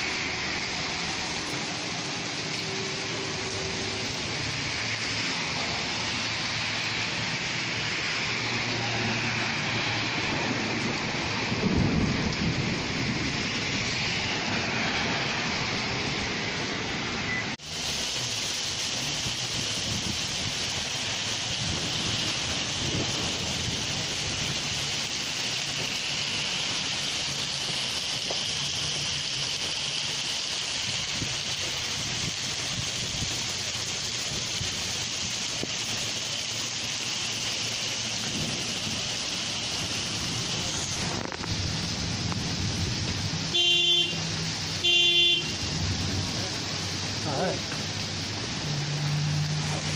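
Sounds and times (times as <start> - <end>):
heavy rain on pavement and cars: 0.0 - 49.9.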